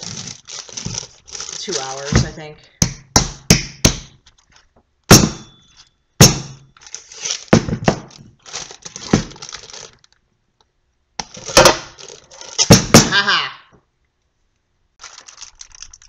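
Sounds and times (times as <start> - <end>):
plastic wrapping crinkling: 0.0 - 2.7, 4.2 - 4.8, 6.7 - 10.3, 11.2 - 13.0, 15.0 - 16.0.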